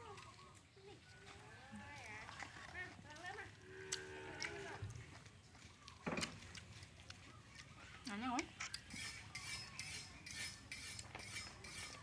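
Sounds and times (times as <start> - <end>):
metal fork scraping in a wok: 8.6 - 12.0.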